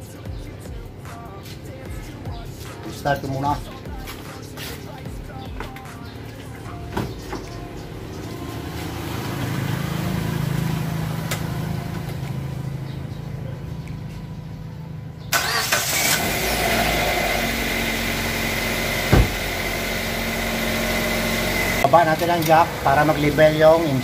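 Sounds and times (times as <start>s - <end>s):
car engine idling with high whine: 0.0s - 24.0s
car engine starting: 0.0s - 24.0s
thump: 19.1s - 19.4s.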